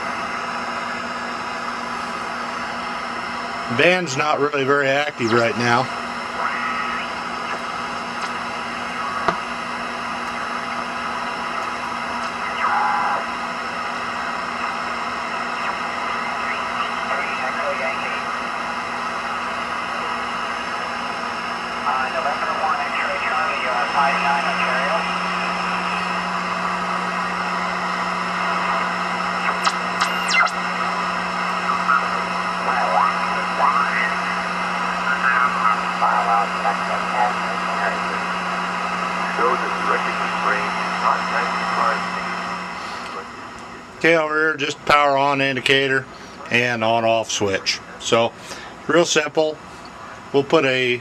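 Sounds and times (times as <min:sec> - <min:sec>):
radio static hiss: 0:00.0 - 0:51.0
steady low hum: 0:00.0 - 0:51.0
tone-like radio signal: 0:00.0 - 0:51.0.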